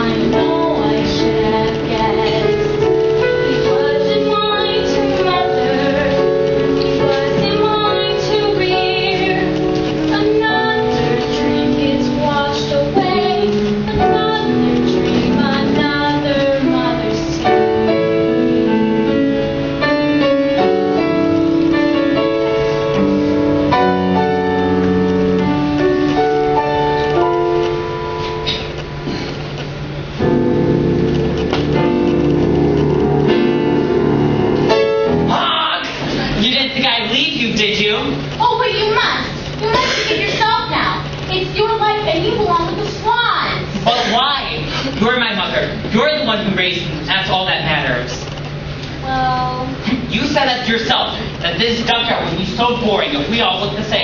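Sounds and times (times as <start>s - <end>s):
young female voices singing: 0.0s - 2.6s, 3.4s - 6.4s, 7.0s - 17.5s
piano accompaniment: 0.0s - 54.0s.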